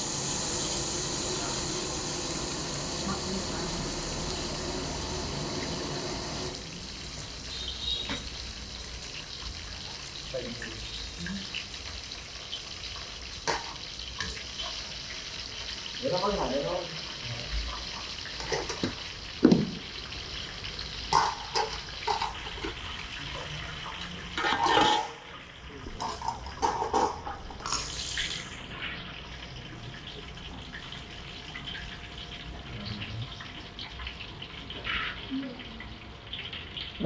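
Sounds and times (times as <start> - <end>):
tap water running into sink: 17.8 - 20.0, 21.0 - 25.0
dishes clattering: 18.4 - 19.8, 21.1 - 22.8, 24.4 - 25.3, 26.0 - 27.5.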